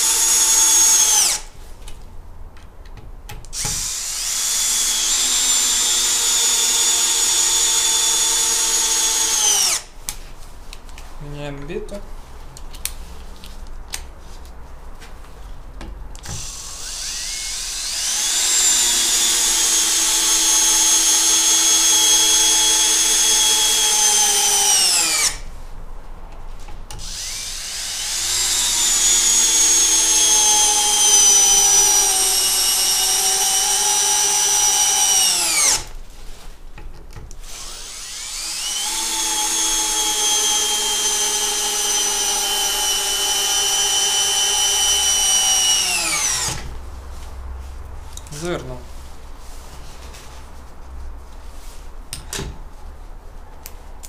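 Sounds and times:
cordless drill driving screws: 0.0s - 1.5s, 3.6s - 9.9s, 16.2s - 25.4s, 27.0s - 35.9s, 37.4s - 46.7s
drill clicks: 16.2s - 25.4s, 27.0s - 35.9s, 37.2s - 46.6s.

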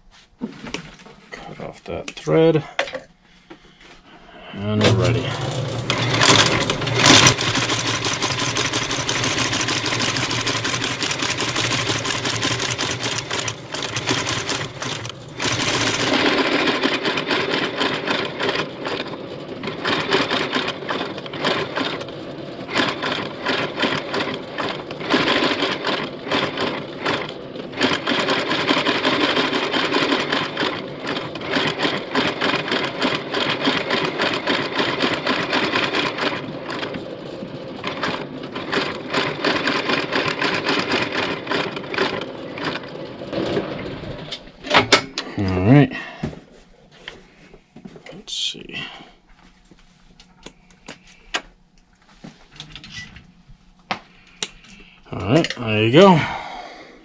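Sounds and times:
stitching machine clattering: 4.8s - 45.1s.

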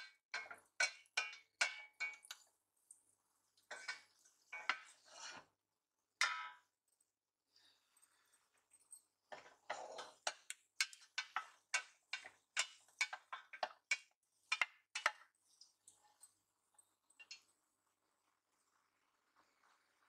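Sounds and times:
wooden spoon knocking on pot: 0.0s - 2.4s, 9.3s - 15.3s.

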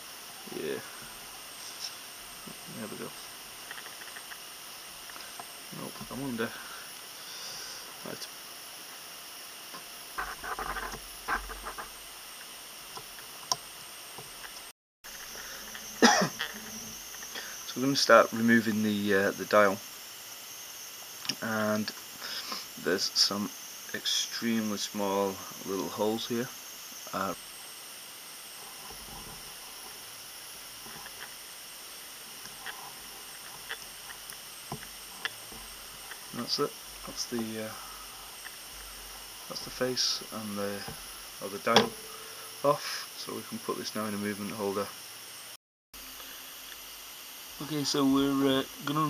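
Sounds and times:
faint hiss: 0.0s - 49.0s
small clicks and rustles: 3.6s - 4.4s.

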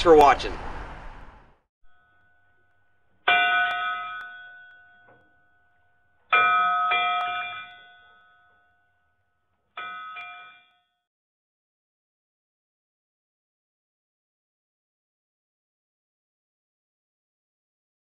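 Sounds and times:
bell ringing: 1.9s - 9.0s, 9.8s - 10.9s.

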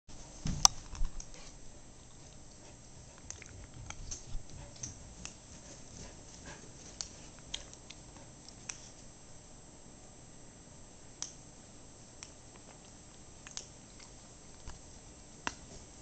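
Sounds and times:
dog paws pattering on carpet: 0.1s - 9.1s, 14.0s - 16.0s.

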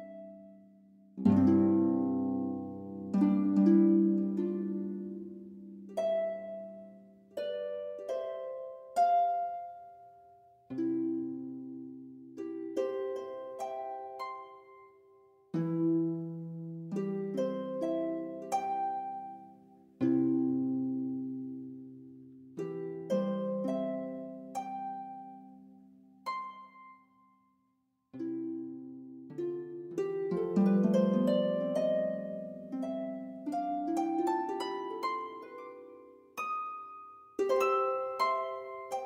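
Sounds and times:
plucked string music: 1.2s - 10.1s, 28.2s - 39.0s.

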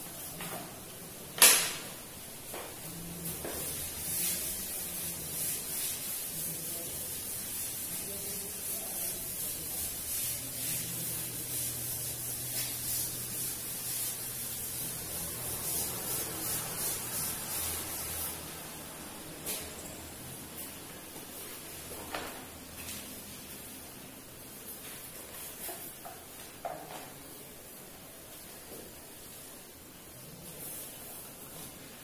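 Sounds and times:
chalk wiped off blackboard: 2.6s - 19.9s.

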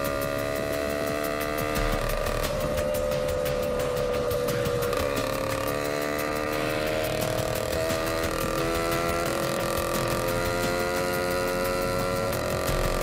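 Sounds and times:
two-stroke engine revving: 0.0s - 13.0s.

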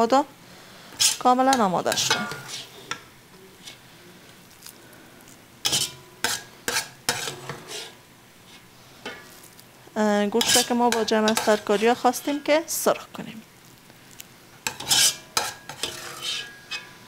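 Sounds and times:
metal spoon scraping inside pot: 0.9s - 3.0s, 5.6s - 9.3s, 10.4s - 12.5s, 14.6s - 17.0s.

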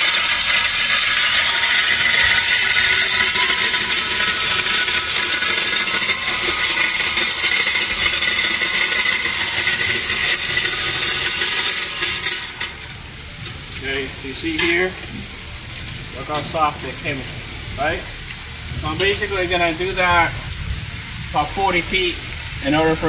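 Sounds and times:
cultivator tines digging soil: 0.0s - 12.8s
dirt and pebbles rattling: 0.0s - 20.6s.

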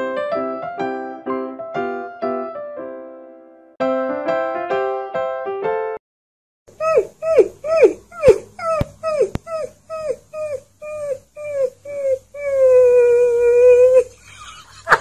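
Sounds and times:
puppy howling: 6.8s - 14.1s.

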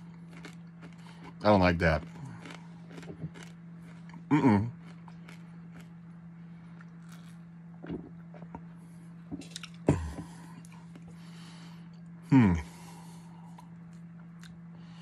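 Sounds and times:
man eating and drinking: 0.0s - 15.0s
steady low hum: 0.0s - 15.0s
man grunting: 12.3s - 12.8s.

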